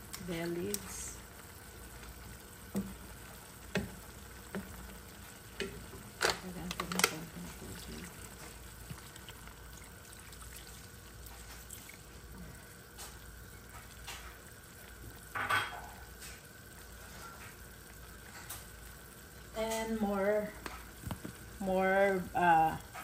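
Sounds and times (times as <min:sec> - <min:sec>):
stew sizzling in a pan: 0:00.0 - 0:23.0.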